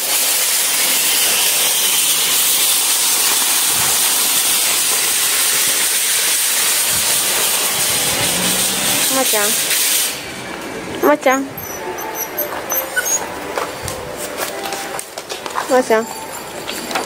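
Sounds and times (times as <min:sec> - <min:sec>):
loud steady hiss: 0:00.0 - 0:10.8.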